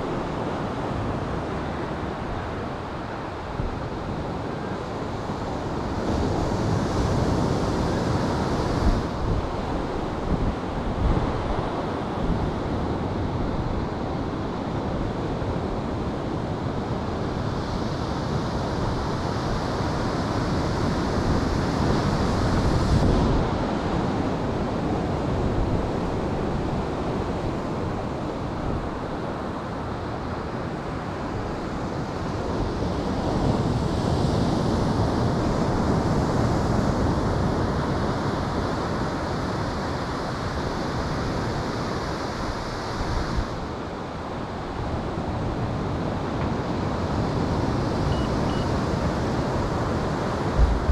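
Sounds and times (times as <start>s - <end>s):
wind rushing over microphone: 0.0s - 50.9s
ocean surf breaking: 44.6s - 50.9s.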